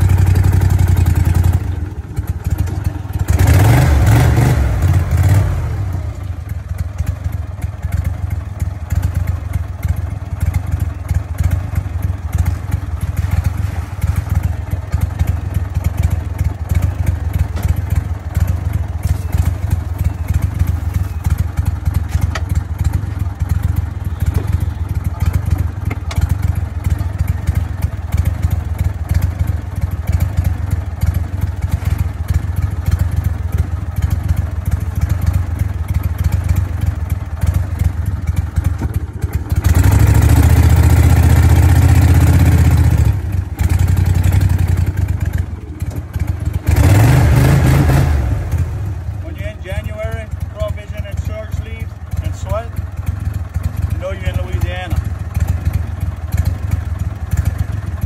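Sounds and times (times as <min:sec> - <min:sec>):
small boat engine running: 0:16.0 - 0:28.0.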